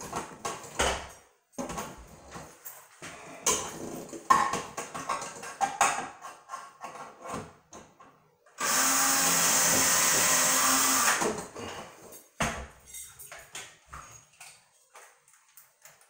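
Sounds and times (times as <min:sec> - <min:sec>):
cordless drill driving screw: 0:08.6 - 0:11.2.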